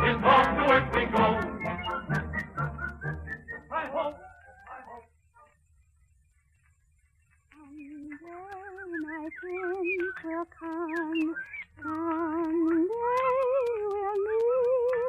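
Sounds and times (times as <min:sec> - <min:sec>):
old recording crackle: 0:00.0 - 0:15.0
woman singing with vibrato: 0:07.6 - 0:15.0.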